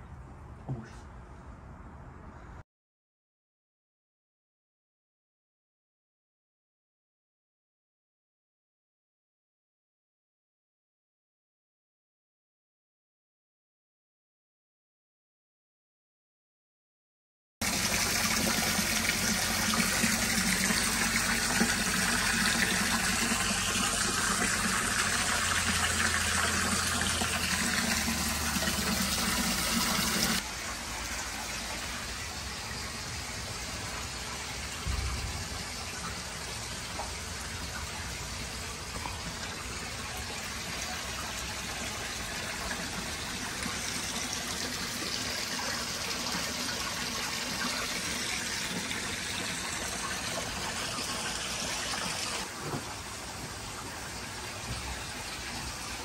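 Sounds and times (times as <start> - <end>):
hose water splashing: 17.6 - 56.0
water stream pouring: 17.6 - 56.0.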